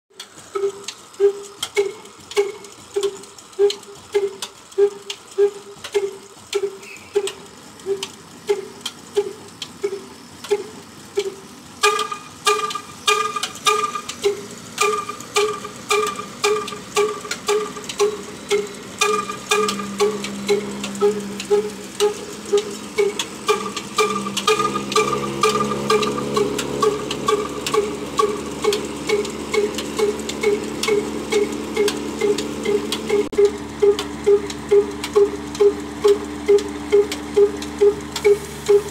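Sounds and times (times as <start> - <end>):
diesel engine thudding beats: 0.1 - 38.9
higher ringing note: 18.1 - 28.6.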